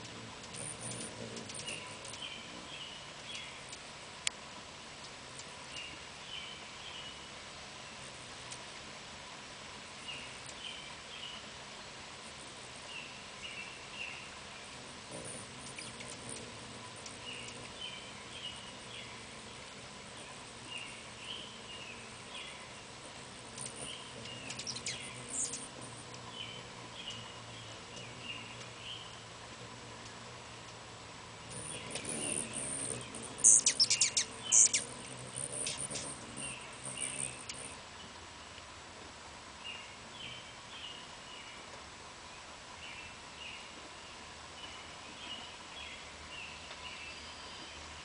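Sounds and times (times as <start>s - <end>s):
small bird chirping: 0.0s - 3.8s, 12.2s - 29.3s, 31.4s - 37.8s
hummingbird chips: 0.0s - 4.4s, 12.2s - 37.8s
hummingbird wing hum: 0.0s - 41.8s
outdoor hiss: 0.0s - 48.0s.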